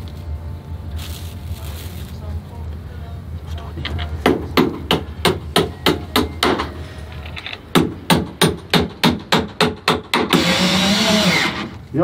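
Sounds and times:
hand hammer striking: 4.2 - 6.7, 7.7 - 10.4
power drill whirring: 10.3 - 11.8.

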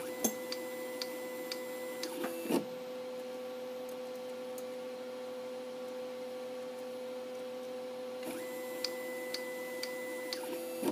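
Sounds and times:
electrical hum of motor drives: 0.0 - 10.9
stepper motor whine: 8.2 - 10.9.

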